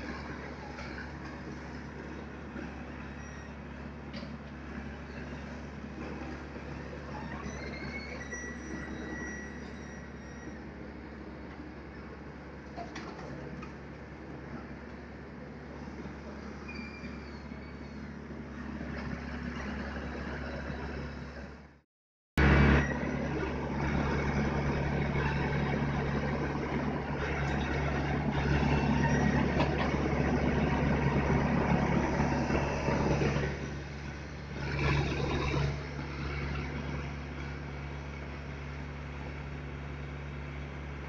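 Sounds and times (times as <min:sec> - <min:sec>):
dump truck diesel engine: 0:00.0 - 0:21.8, 0:22.4 - 0:41.0.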